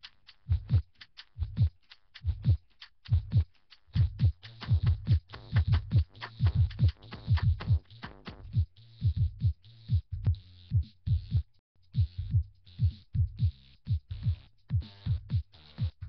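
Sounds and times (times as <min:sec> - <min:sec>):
kick drum thumps: 0:01.4 - 0:03.4, 0:04.0 - 0:11.4, 0:12.0 - 0:16.0
low bass hum: 0:04.0 - 0:16.0.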